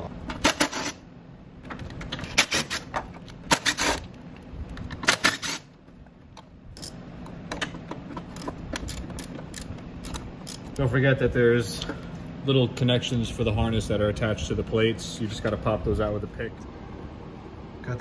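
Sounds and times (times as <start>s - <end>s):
metal tools clicking: 6.8s - 10.8s
socket ratchet clicking: 7.6s - 10.8s.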